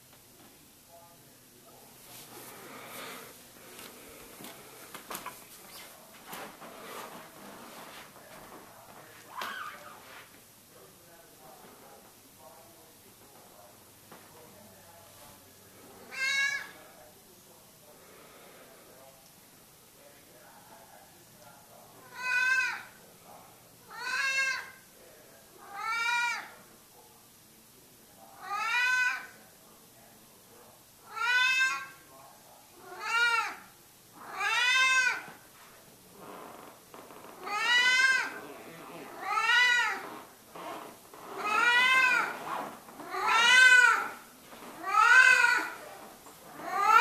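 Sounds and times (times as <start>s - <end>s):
cat meowing: 16.1s - 16.8s, 22.0s - 22.9s, 23.9s - 24.8s, 25.6s - 26.5s, 28.4s - 29.3s, 31.1s - 32.0s, 32.8s - 33.6s, 34.2s - 35.3s, 37.4s - 38.4s, 39.1s - 40.1s, 41.3s - 42.4s, 43.0s - 44.2s, 44.8s - 45.8s, 46.5s - 47.0s.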